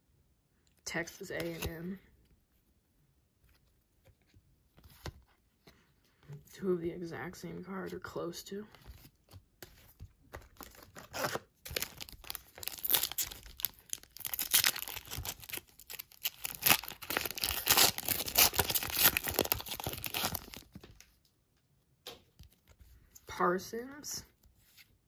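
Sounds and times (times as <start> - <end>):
wrapper tearing and crinkling: 10.5 - 21.0.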